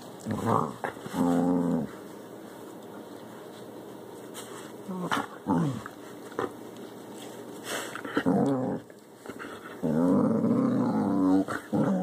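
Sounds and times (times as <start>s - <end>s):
dog growling: 0.2s - 2.0s, 4.8s - 6.6s, 8.0s - 12.0s.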